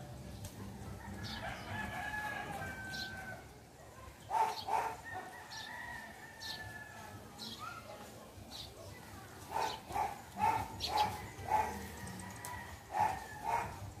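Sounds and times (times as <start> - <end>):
rooster crowing: 1.0 - 3.4.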